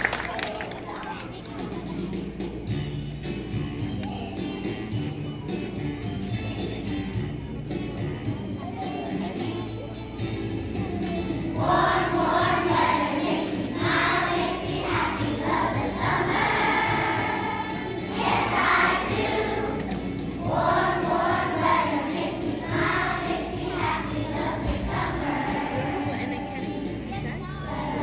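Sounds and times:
children singing in a choir: 11.6s - 19.8s, 20.5s - 26.0s.

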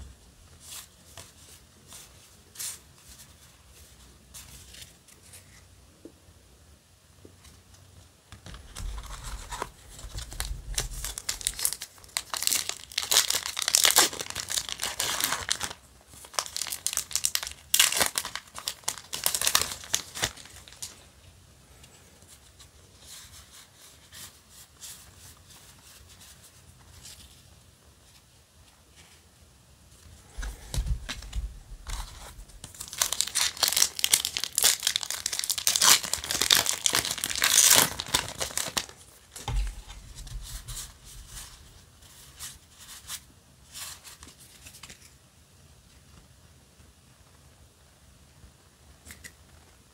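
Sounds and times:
foil wrapper tearing and crinkling: 8.5s - 20.9s, 31.0s - 41.6s.

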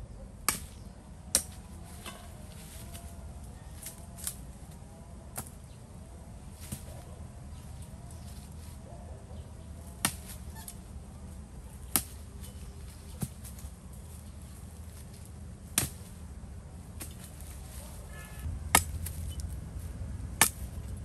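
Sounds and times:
blade chopping firewood: 0.5s - 2.4s, 11.8s - 13.6s, 15.7s - 16.2s, 18.7s - 19.5s, 20.4s - 20.8s.

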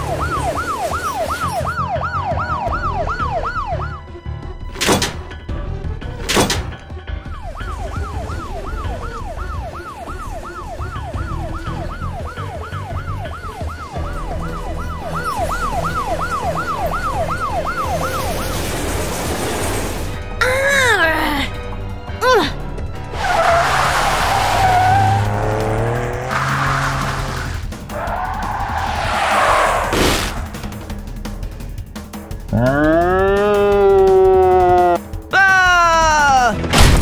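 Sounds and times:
cartoon police siren wailing: 0.0s - 4.1s, 7.3s - 18.6s
background music: 0.0s - 37.0s
sharp whooshing hits: 28.4s - 31.0s.

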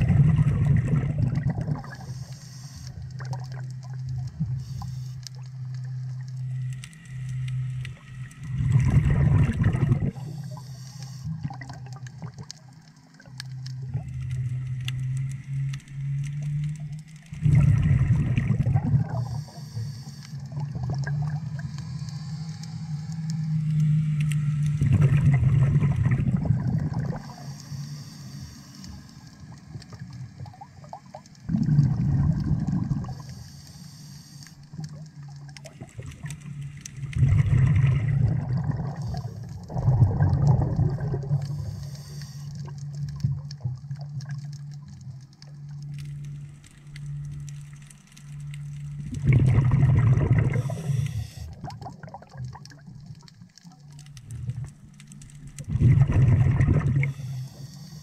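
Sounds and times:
exhalation bubbles underwater: 0.0s - 2.1s, 8.4s - 10.6s, 11.3s - 12.5s, 17.3s - 19.5s, 20.5s - 21.6s, 24.8s - 27.4s, 30.0s - 33.3s, 35.6s - 41.8s, 49.0s - 53.3s, 55.5s - 57.2s
low steady hum: 0.0s - 58.0s.

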